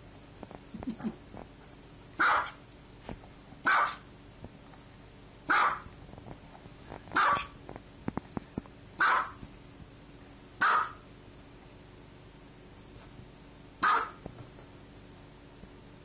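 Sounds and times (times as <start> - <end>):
small dog barking: 2.2 - 2.6, 3.6 - 4.1, 5.5 - 5.9, 7.2 - 7.6, 9.0 - 9.4, 10.6 - 11.1, 13.8 - 14.2.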